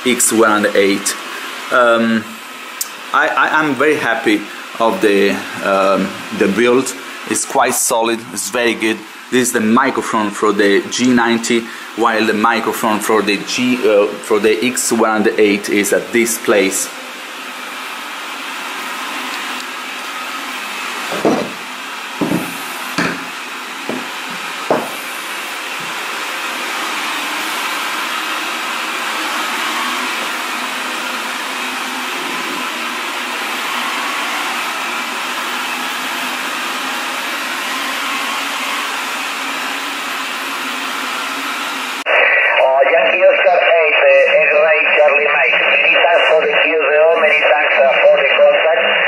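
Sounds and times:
knocks on a tabletop: 21.1 - 21.6, 22.2 - 23.3, 23.9 - 24.1, 24.7 - 25.0.

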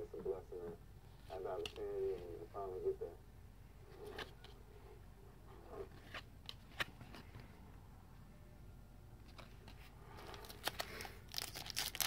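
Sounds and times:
cards rustling: 9.2 - 12.0.

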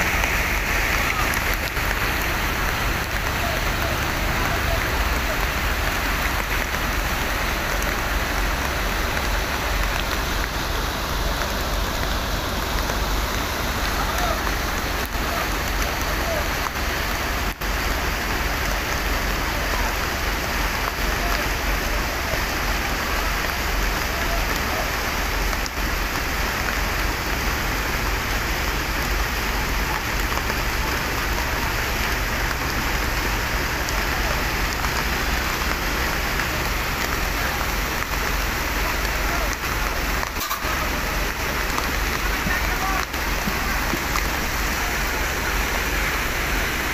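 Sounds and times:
heavy rain pouring: 0.0 - 46.9.

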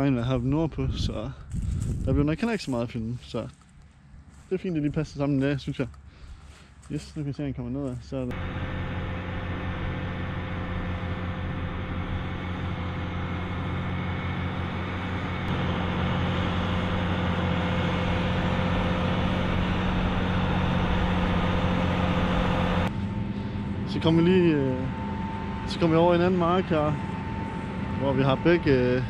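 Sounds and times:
tractor diesel engine droning: 8.3 - 29.0.

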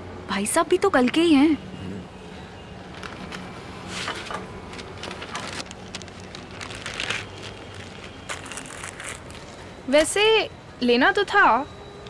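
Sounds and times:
newspaper rustling and crinkling: 2.9 - 9.8.

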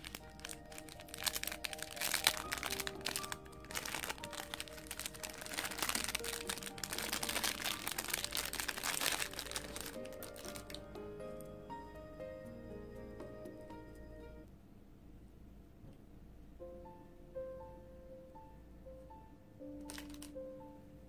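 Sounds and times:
plastic wrapper crinkling: 0.0 - 10.9, 19.9 - 20.4
soft background music: 0.0 - 14.5, 16.6 - 21.0.

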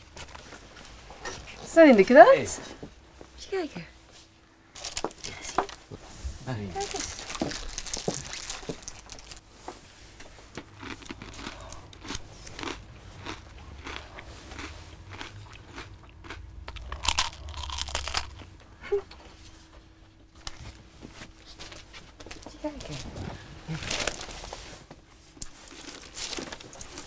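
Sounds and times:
foil wrappers crinkling: 4.8 - 5.9, 6.7 - 9.5, 23.7 - 24.7, 25.6 - 27.0
crunching: 10.5 - 18.5.

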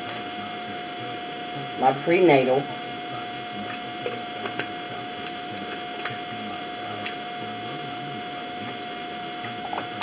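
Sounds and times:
electrical hum with high tone: 0.0 - 10.0.

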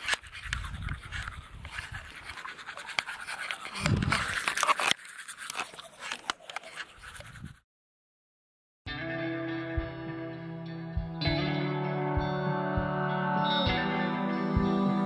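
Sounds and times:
toothbrush scrubbing teeth: 0.0 - 7.6.

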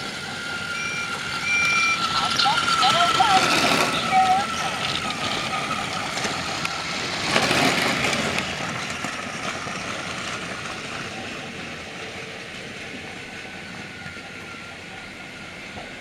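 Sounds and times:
toy train motor whine: 0.0 - 10.6.

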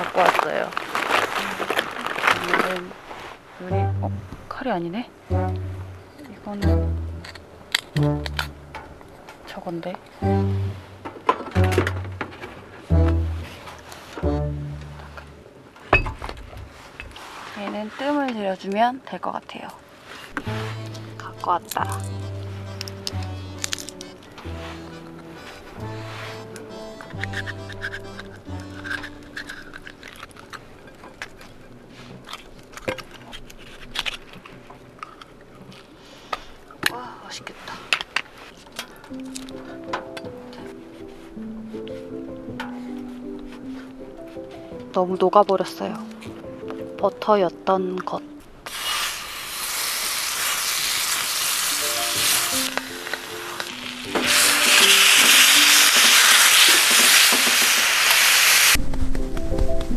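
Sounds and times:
metal utensil scraping shell: 6.1 - 8.9, 26.4 - 31.3, 51.3 - 58.2
butter sizzling in a tray: 48.7 - 58.8.

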